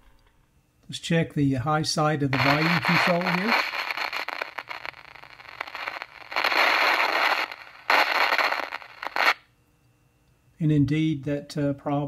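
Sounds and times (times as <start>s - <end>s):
crackling radio noise: 2.2s - 9.4s.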